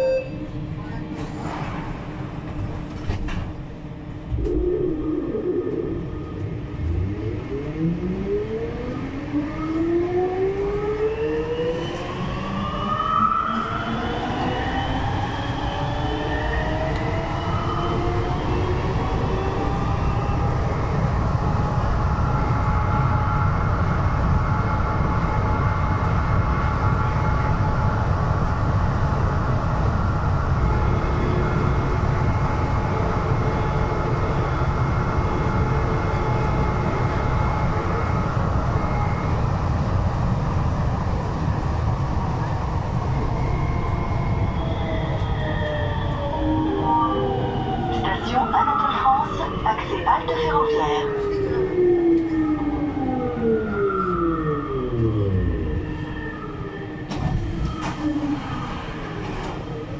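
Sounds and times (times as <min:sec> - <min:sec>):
metro train traction whine: 0:00.0 - 0:59.9.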